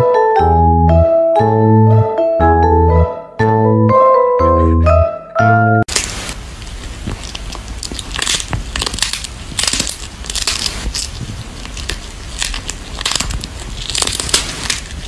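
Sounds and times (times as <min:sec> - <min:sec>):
cat chewing crunchy fish: 0:05.9 - 0:15.0.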